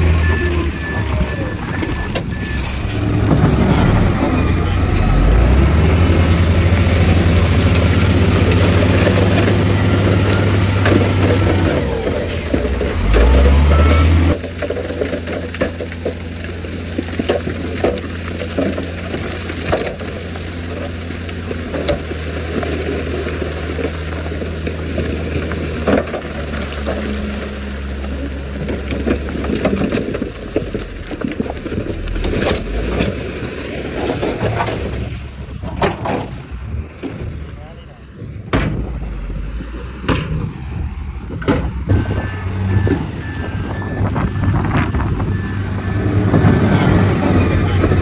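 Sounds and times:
diesel truck engine humming: 0:00.0 - 0:48.0
rock sliding and clattering: 0:06.7 - 0:37.6.

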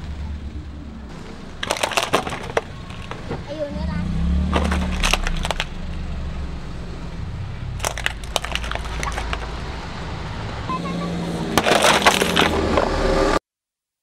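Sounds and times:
car engine humming: 0:00.0 - 0:13.4
plastic toy cracking: 0:01.6 - 0:03.3, 0:04.4 - 0:05.8, 0:07.8 - 0:09.5, 0:11.6 - 0:12.8.

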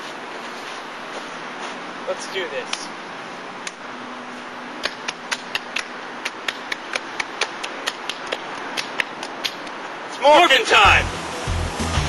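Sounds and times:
hands clapping: 0:04.8 - 0:09.8.

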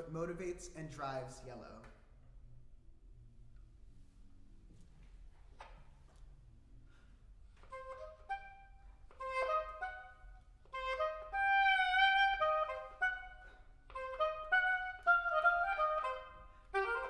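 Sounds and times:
oboe melody: 0:07.4 - 0:17.0.

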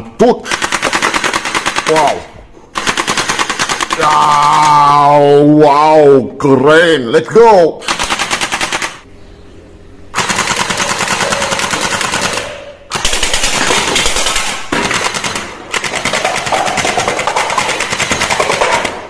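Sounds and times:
toy machine gun firing: 0:00.4 - 0:02.2, 0:02.8 - 0:04.1, 0:07.8 - 0:09.0, 0:10.2 - 0:19.0.

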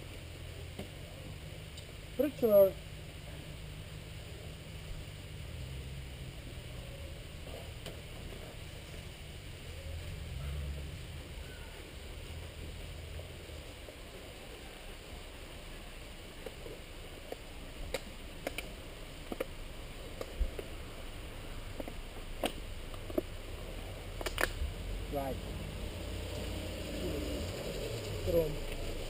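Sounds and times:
camping gear clicking and knocking: 0:24.2 - 0:24.6.

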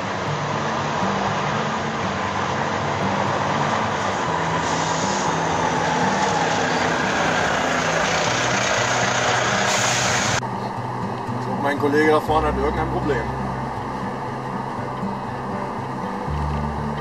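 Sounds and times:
lorry engine passing: 0:00.0 - 0:17.0
music with moving bass line: 0:00.0 - 0:17.0.

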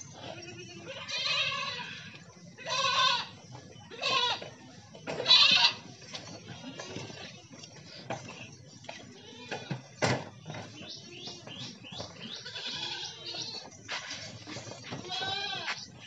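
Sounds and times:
goats bleating: 0:00.1 - 0:04.6, 0:05.2 - 0:05.9, 0:09.1 - 0:09.9, 0:12.2 - 0:13.7, 0:14.9 - 0:15.9.

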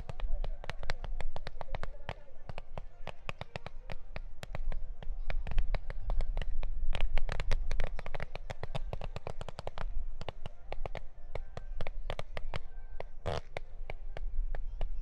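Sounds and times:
fireworks bangs and crackles: 0:00.0 - 0:11.1.

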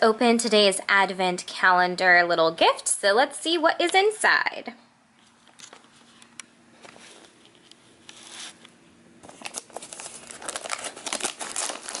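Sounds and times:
paper wrapping rustling and crinkling: 0:05.2 - 0:08.6, 0:09.2 - 0:12.0.

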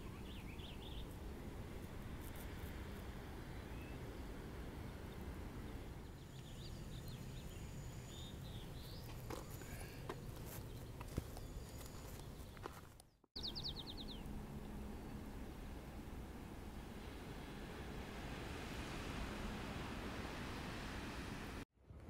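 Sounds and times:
small birds chirping: 0:00.0 - 0:01.3, 0:05.0 - 0:15.1
songbird trill: 0:00.0 - 0:01.3, 0:03.5 - 0:04.3, 0:05.1 - 0:15.5
wind rumble: 0:00.0 - 0:11.1, 0:13.4 - 0:22.0.

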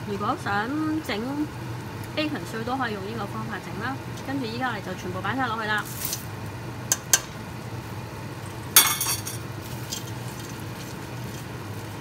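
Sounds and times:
wooden spoon stirring food: 0:09.6 - 0:12.0.

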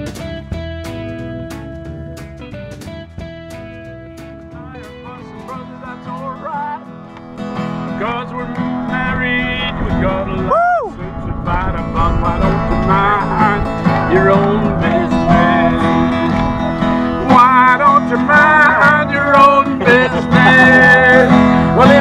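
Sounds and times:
acoustic guitar strumming: 0:00.0 - 0:22.0
voices singing: 0:08.0 - 0:16.6, 0:17.2 - 0:22.0.

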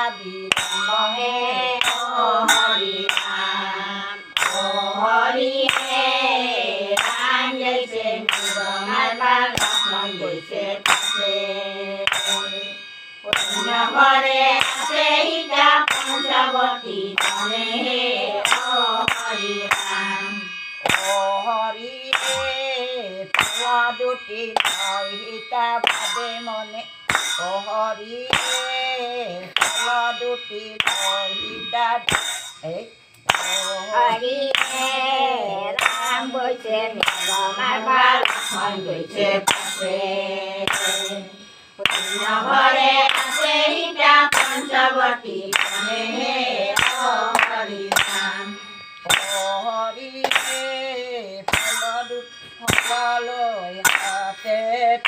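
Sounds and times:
women singing together: 0:00.0 - 0:32.4, 0:33.3 - 0:55.0
hand claps: 0:00.5 - 0:00.9, 0:01.7 - 0:04.8, 0:05.6 - 0:06.2, 0:07.0 - 0:07.4, 0:08.2 - 0:11.3, 0:12.1 - 0:12.6, 0:13.3 - 0:13.8, 0:14.6 - 0:15.0, 0:15.8 - 0:16.3, 0:17.2 - 0:17.8, 0:18.4 - 0:20.1, 0:20.8 - 0:21.2, 0:22.1 - 0:22.6, 0:23.3 - 0:23.7, 0:24.6 - 0:25.0, 0:25.8 - 0:26.3, 0:27.1 - 0:27.5, 0:28.3 - 0:28.7, 0:29.4 - 0:30.0, 0:30.8 - 0:31.4, 0:32.1 - 0:35.0, 0:35.8 - 0:36.4, 0:37.0 - 0:39.9, 0:40.7 - 0:41.2, 0:41.8 - 0:44.9, 0:45.5 - 0:49.5, 0:50.2 - 0:50.8, 0:51.5 - 0:53.1, 0:53.8 - 0:54.4.

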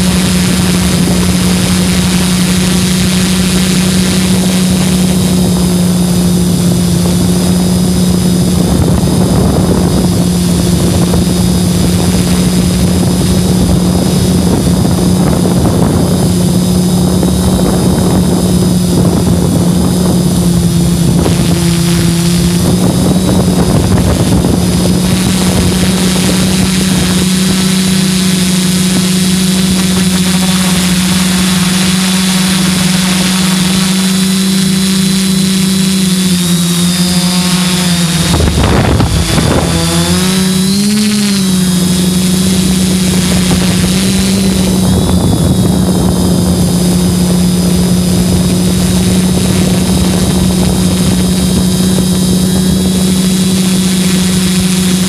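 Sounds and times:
drone motors humming: 0:00.0 - 0:55.0.

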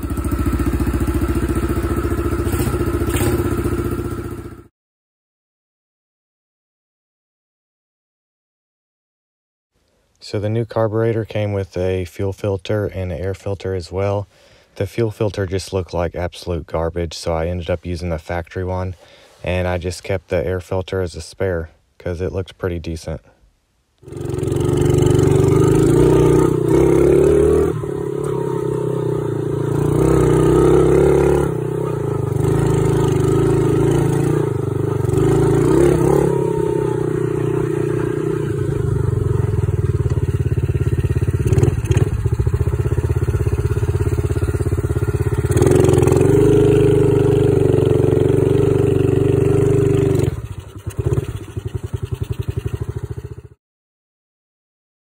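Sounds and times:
dirt bike engine revving: 0:00.0 - 0:04.7, 0:24.0 - 0:53.6.

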